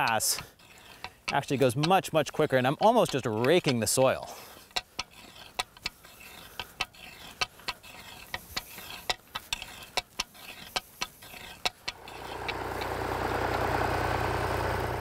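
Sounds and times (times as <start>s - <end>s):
hoe scraping dry soil: 0.0s - 15.0s.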